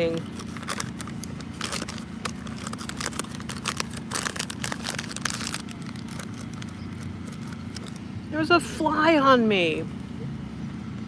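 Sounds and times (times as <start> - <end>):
crinkling and crackling: 0.0 - 8.0
low background hum: 0.0 - 11.0.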